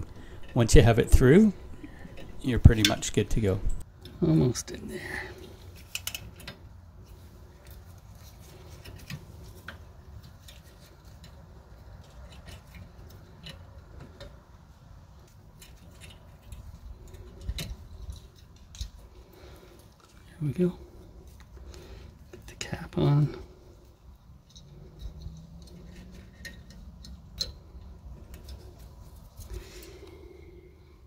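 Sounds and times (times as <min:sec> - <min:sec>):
faint low hum: 0:00.0 - 0:31.0
small metallic clicks and scrapes: 0:05.3 - 0:31.0.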